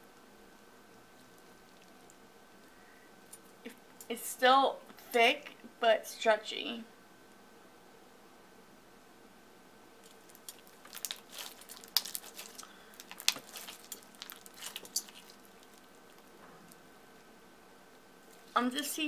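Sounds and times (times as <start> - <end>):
slime squishing with sticky pops: 10.0 - 16.8.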